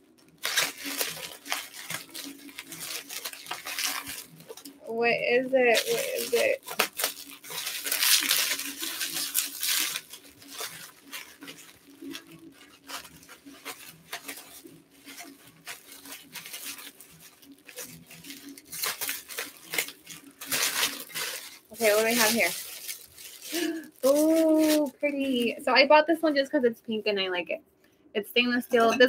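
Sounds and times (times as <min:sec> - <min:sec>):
paper tearing and crinkling: 0:00.0 - 0:25.6
scissors cutting paper: 0:00.2 - 0:25.5.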